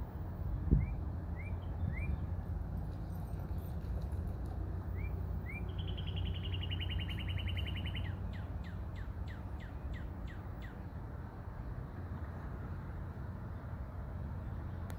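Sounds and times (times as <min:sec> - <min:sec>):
songbirds singing: 0:00.6 - 0:11.8.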